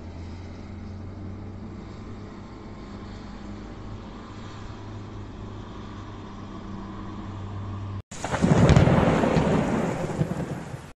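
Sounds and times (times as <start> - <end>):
heavy rain: 8.1 - 11.0
thunder rumbling: 8.1 - 11.0.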